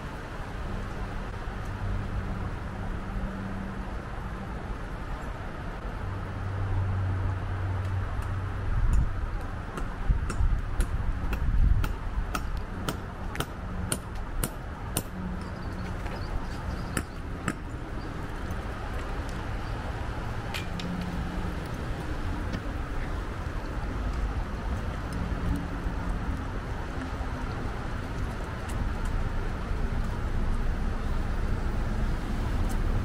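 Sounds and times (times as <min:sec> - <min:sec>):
wind buffeting microphone: 0:08.0 - 0:33.0
footsteps on pavement: 0:10.4 - 0:33.0.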